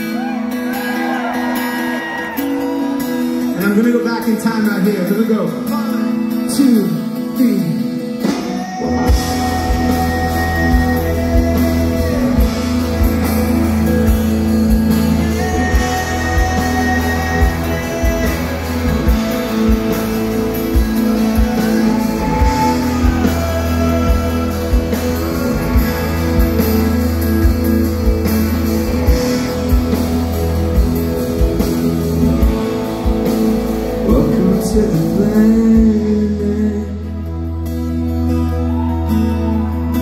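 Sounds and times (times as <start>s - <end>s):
guitar: 0.0s - 40.0s
lead singer: 5.9s - 40.0s
steady drum beat: 8.3s - 36.2s.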